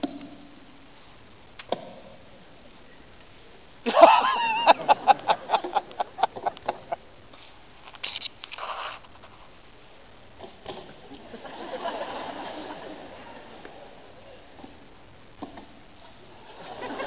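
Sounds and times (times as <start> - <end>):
rapid laughter: 3.9 - 7.0, 16.4 - 17.0.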